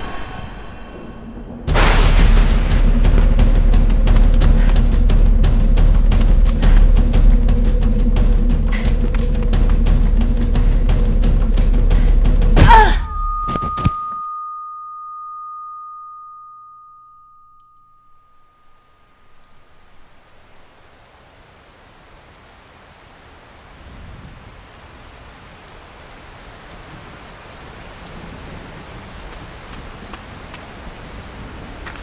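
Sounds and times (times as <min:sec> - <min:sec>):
steady rain: 0:01.4 - 0:13.0, 0:19.2 - 0:32.0
high steady ringing tone: 0:13.0 - 0:20.2.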